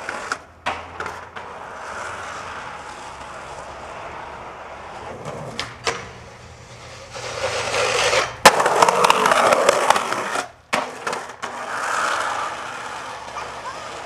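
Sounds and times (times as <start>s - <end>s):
skateboard knocking on ground: 0.0s - 1.7s, 5.1s - 6.2s, 7.7s - 14.0s
skateboard scraping down handrail: 0.0s - 14.0s.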